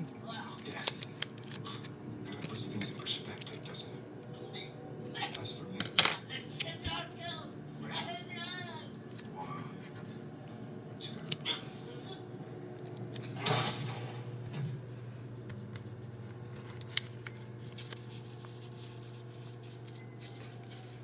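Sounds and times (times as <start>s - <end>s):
steady low hum: 0.0s - 21.0s
paper rustling and crinkling: 15.5s - 21.0s.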